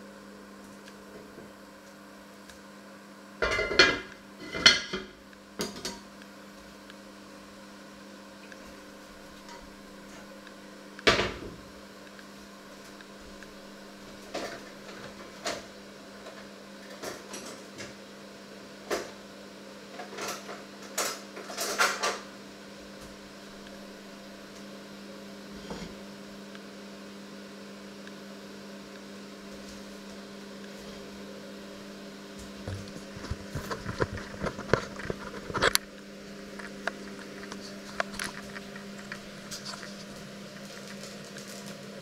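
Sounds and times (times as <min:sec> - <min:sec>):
electrical hum: 0:00.0 - 0:42.0
pots and dishes clinking: 0:03.4 - 0:06.0.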